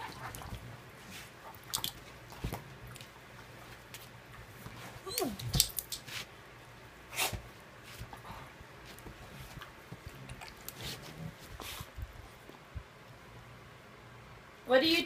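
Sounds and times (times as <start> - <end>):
dog whine: 5.0 - 5.6.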